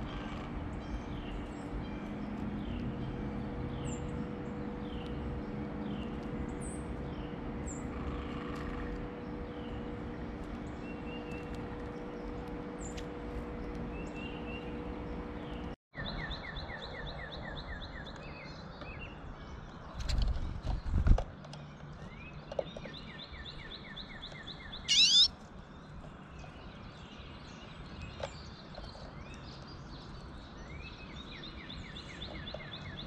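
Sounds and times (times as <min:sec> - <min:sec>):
bird chirping: 0:23.0 - 0:25.3
bird trill: 0:24.8 - 0:25.3.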